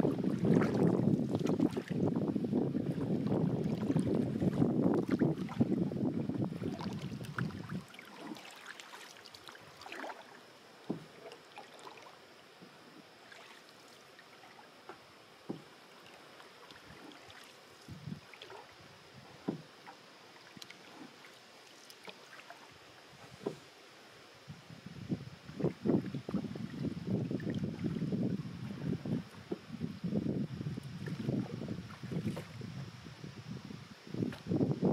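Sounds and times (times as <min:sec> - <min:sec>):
paddle splashes and drips: 0:00.0 - 0:23.6, 0:25.5 - 0:28.0, 0:30.8 - 0:32.6
light knocks on canoe: 0:10.9 - 0:11.2, 0:14.9 - 0:15.7, 0:19.4 - 0:20.0, 0:23.3 - 0:23.6.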